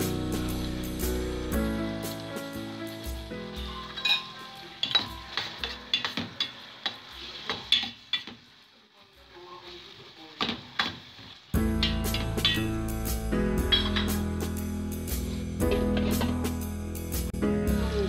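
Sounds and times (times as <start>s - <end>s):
vegetables sizzling in oil: 0.0s - 16.6s
utensil scraping and clinking on pan: 3.9s - 8.4s, 11.8s - 12.7s.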